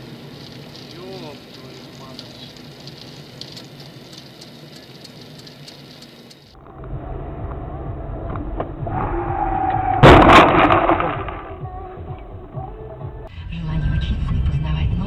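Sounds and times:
faint hiss: 0:00.0 - 0:06.5
road and engine noise: 0:00.0 - 0:10.2
loud car crash: 0:08.6 - 0:11.5.

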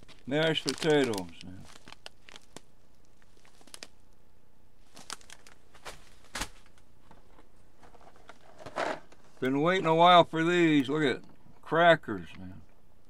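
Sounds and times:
plastic bag rustling: 0:00.0 - 0:04.1, 0:04.8 - 0:09.8
faint steady hiss: 0:00.0 - 0:13.0.

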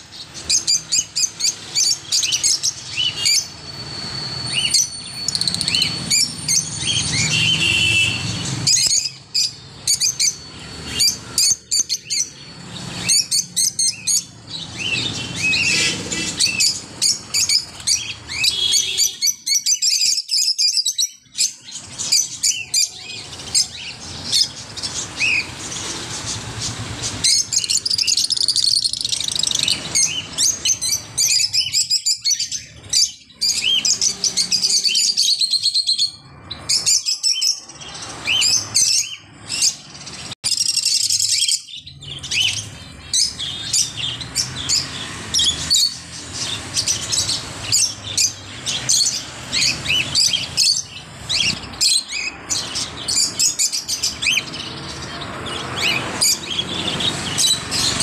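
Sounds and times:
many birds chirping: 0:00.0 - 0:58.0.

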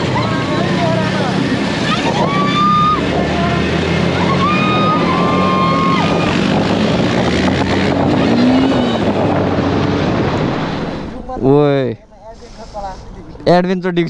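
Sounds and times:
wind on microphone: 0:04.8 - 0:11.5.

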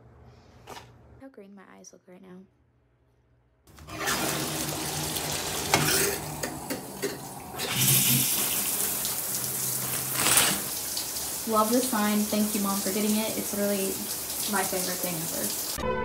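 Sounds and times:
shower water spraying on tiles: 0:03.8 - 0:15.8.

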